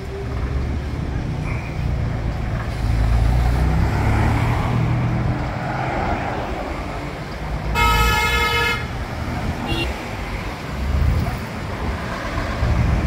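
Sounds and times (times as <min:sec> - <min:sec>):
bus engine rumbling: 0:00.0 - 0:13.0
bus horn tooting: 0:07.7 - 0:09.0, 0:09.6 - 0:10.0.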